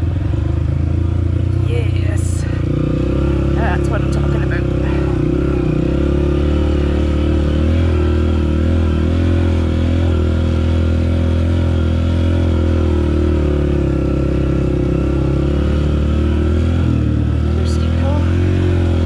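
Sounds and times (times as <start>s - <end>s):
dirt bike engine running: 0.0s - 19.0s.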